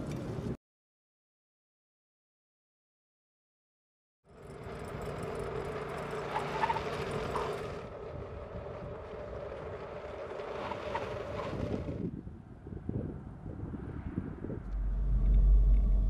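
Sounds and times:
road noise: 0:04.3 - 0:16.0
car driving hum: 0:04.4 - 0:12.2, 0:14.3 - 0:16.0.

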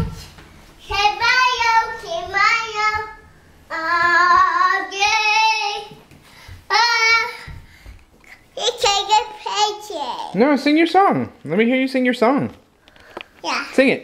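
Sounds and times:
child singing high-pitched: 0:00.8 - 0:06.0, 0:06.7 - 0:07.6.

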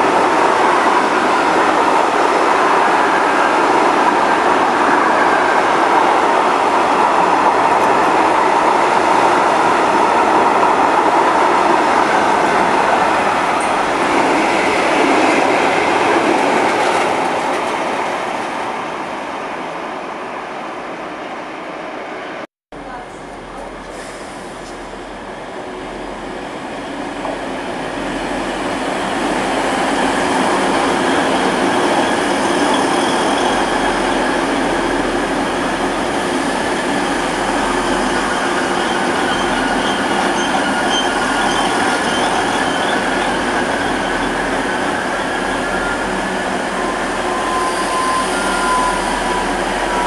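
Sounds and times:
diesel train passing: 0:00.0 - 0:20.0, 0:20.8 - 0:50.0
thin squeal: 0:46.9 - 0:50.0.

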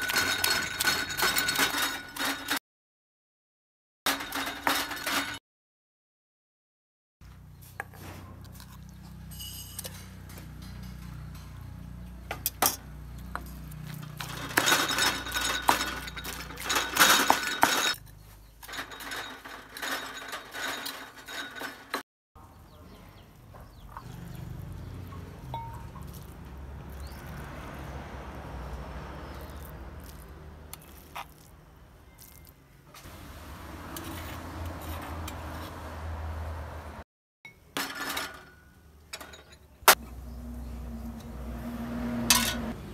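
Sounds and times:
metal spoon scraping stone mortar: 0:00.0 - 0:02.6, 0:24.3 - 0:27.8, 0:29.2 - 0:32.6, 0:33.8 - 0:35.8.

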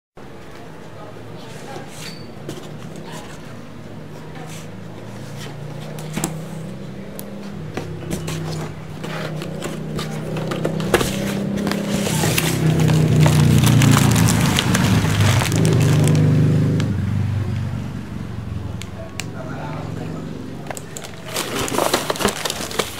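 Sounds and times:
cardboard box handling: 0:07.7 - 0:16.1, 0:20.7 - 0:22.9.

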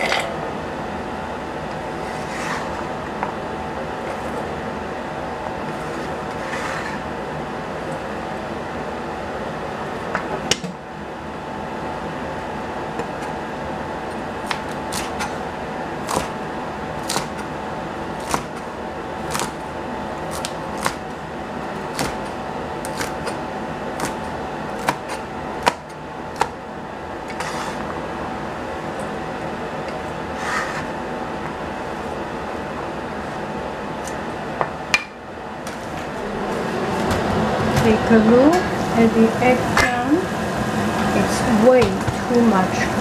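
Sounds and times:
steady background hum: 0:00.0 - 0:43.0
cleaver chopping on cutting board: 0:18.2 - 0:18.6, 0:20.3 - 0:21.0, 0:24.8 - 0:25.8.

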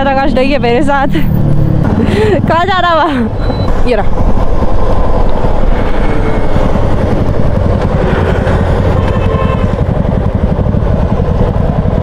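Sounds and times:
motorcycle engine droning: 0:00.0 - 0:12.0
road noise: 0:00.0 - 0:12.0.

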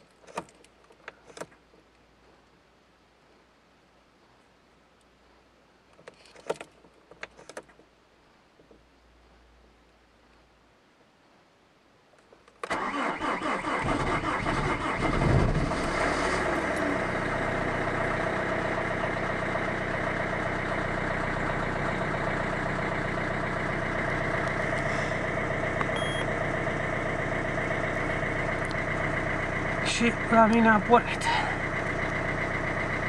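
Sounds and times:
starter motor cranking: 0:12.7 - 0:16.9
diesel engine idling: 0:12.8 - 0:33.0.

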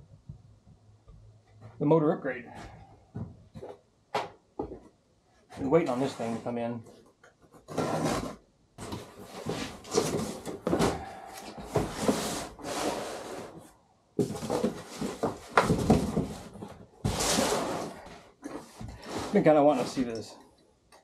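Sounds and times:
box being unpacked by hand: 0:07.6 - 0:13.6, 0:14.2 - 0:19.9.

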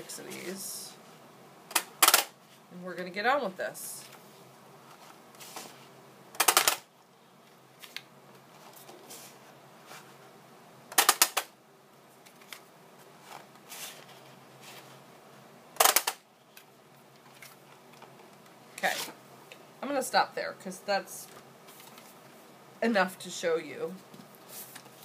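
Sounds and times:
paper rustling: 0:07.8 - 0:10.2, 0:12.2 - 0:15.0, 0:21.7 - 0:22.2, 0:24.2 - 0:25.0.

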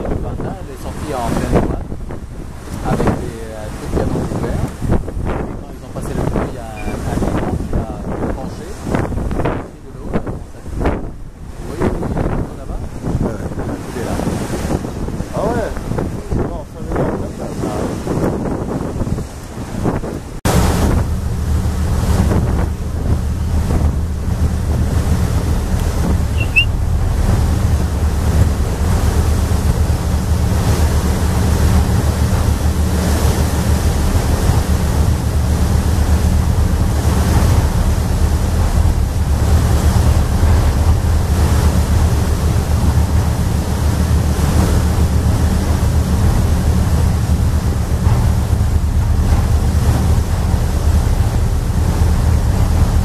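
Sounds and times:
water rushing past hull: 0:00.0 - 0:53.0
wind on microphone: 0:00.0 - 0:53.0
low engine drone: 0:20.5 - 0:53.0.

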